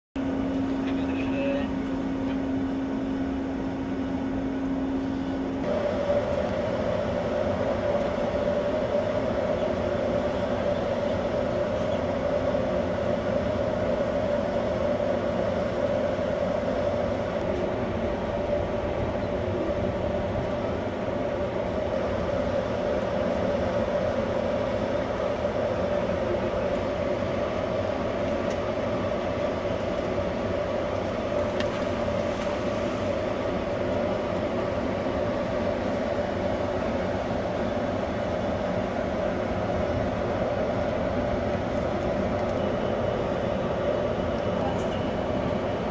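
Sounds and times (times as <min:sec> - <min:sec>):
ship machinery drone: 0:00.2 - 0:45.9.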